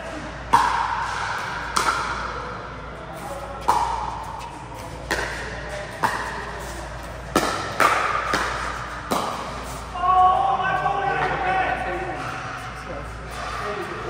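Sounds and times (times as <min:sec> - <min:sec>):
paddle hitting plastic ball: 0:07.2 - 0:09.6.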